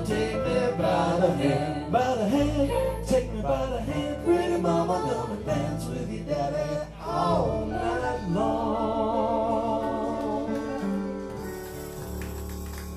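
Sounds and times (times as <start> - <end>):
voices singing in harmony: 0.0 - 11.6
live band playing: 10.6 - 12.9.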